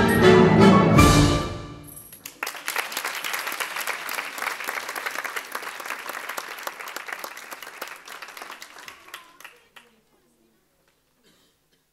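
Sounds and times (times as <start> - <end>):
audience applauding: 2.2 - 10.1.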